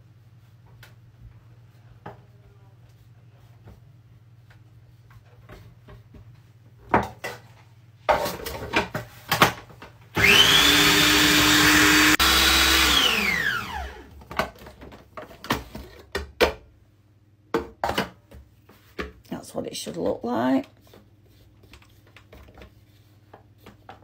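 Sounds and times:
food processor motor whining: 0:10.2 - 0:14.1.

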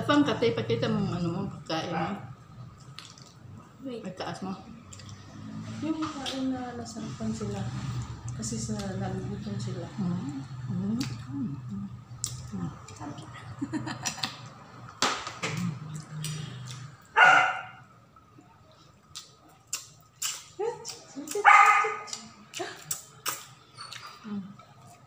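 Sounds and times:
clicks and rustles of eating: 0:02.8 - 0:03.4, 0:18.7 - 0:25.0
dog barking: 0:17.1 - 0:17.9, 0:21.4 - 0:22.2.

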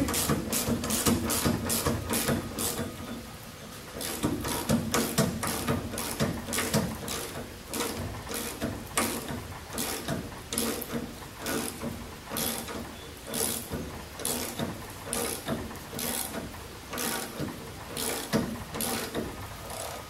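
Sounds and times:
ratchet wrench clicking: 0:12.4 - 0:16.4, 0:18.0 - 0:20.0.

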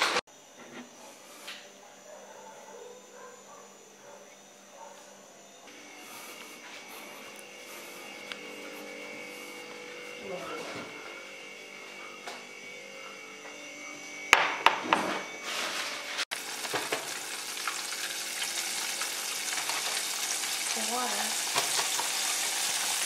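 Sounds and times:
kitchen hum: 0:00.0 - 0:23.0
chicken sizzling in hot oil: 0:16.2 - 0:23.0.

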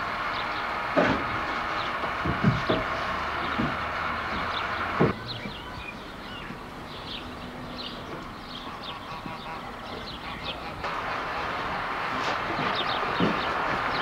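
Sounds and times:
small birds chirping: 0:01.7 - 0:10.9, 0:12.3 - 0:14.0.

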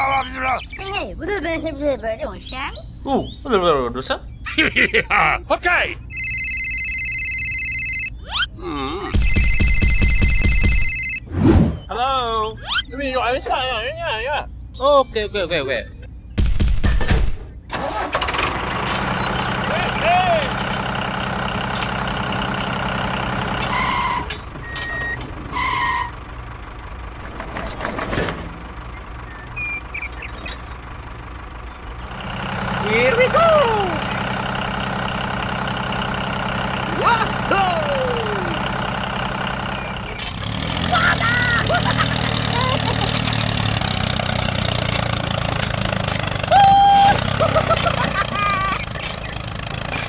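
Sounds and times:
phone ringtone: 0:06.1 - 0:08.3, 0:09.2 - 0:11.3
tractor engine running: 0:09.2 - 0:11.2, 0:16.1 - 0:50.0
electronic reversing beeps: 0:09.2 - 0:11.9, 0:29.2 - 0:30.3
sped-up cartoon voice: 0:36.9 - 0:38.6.

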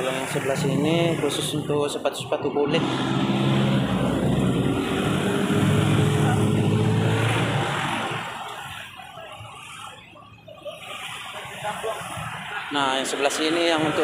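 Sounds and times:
vehicle engine passing: 0:00.0 - 0:10.0.

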